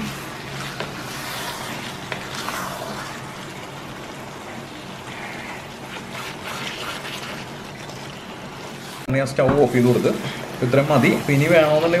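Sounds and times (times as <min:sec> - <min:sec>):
spatula scraping and tapping pan: 0:00.0 - 0:02.6
gravy sizzling and bubbling in a pan: 0:00.0 - 0:12.0.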